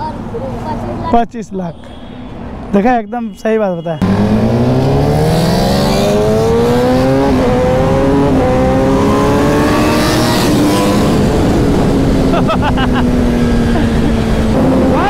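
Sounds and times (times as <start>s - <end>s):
motorcycle engine accelerating: 4.0s - 15.0s.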